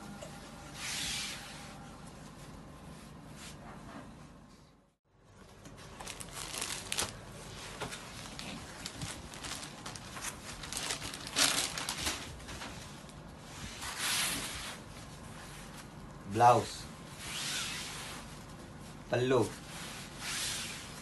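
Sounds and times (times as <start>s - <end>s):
silk fabric rustling: 6.1s - 15.8s.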